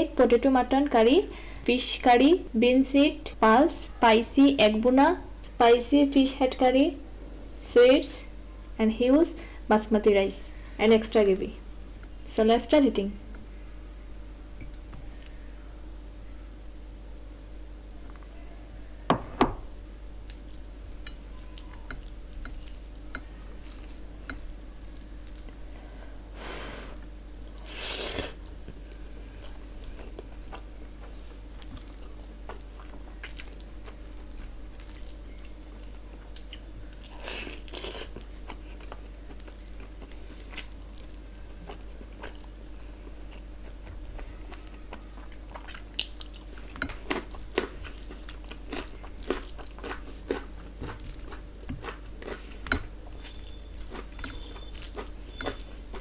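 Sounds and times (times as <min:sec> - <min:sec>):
chewing: 0:20.2 - 0:25.6, 0:28.3 - 0:56.0
fingers squishing rice with gravy: 0:20.2 - 0:25.6, 0:26.9 - 0:42.9, 0:45.4 - 0:56.0.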